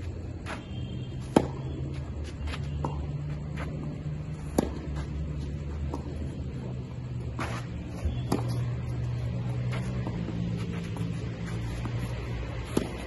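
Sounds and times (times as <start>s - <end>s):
steady low hum: 0.0s - 13.0s
tennis racket hitting ball: 1.2s - 2.0s, 2.7s - 5.1s, 7.3s - 8.8s, 9.4s - 13.0s.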